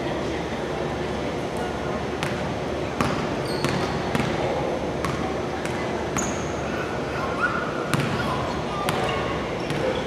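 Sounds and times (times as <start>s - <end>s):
basketballs bouncing on hardwood floor: 3.0s - 4.4s, 7.9s - 8.2s.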